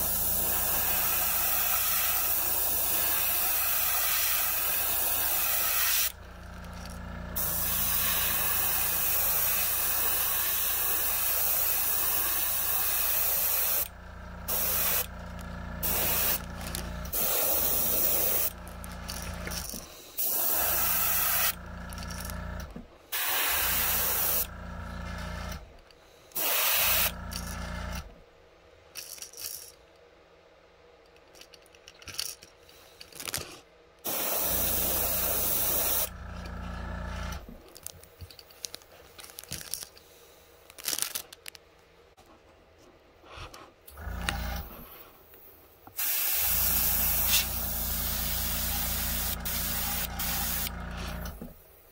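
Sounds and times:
airbrush spraying hiss: 0.0s - 6.2s, 7.4s - 13.9s, 14.5s - 15.1s, 15.8s - 16.4s, 17.1s - 18.6s, 19.7s - 21.6s, 23.2s - 24.5s, 26.4s - 27.2s, 34.1s - 36.1s, 46.0s - 51.1s
air compressor hum: 0.0s - 25.8s, 26.4s - 28.2s, 34.0s - 37.7s, 43.9s - 45.3s, 46.0s - 51.9s.

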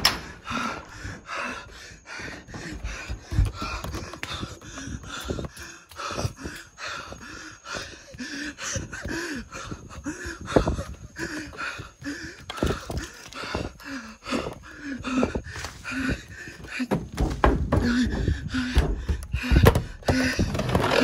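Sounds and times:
person panting hard: 0.0s - 21.0s
thumps and knocks from movement: 16.8s - 21.0s.

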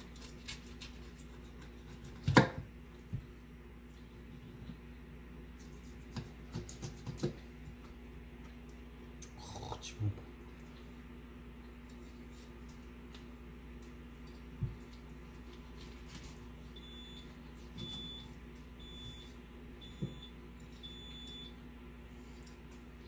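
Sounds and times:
knife cutting fish: 5.7s - 7.4s.

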